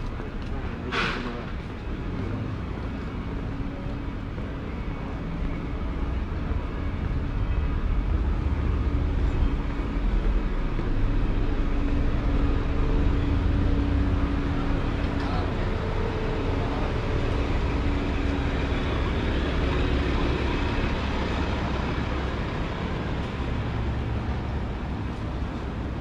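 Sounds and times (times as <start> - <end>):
car engine rumble: 5.7 - 26.0.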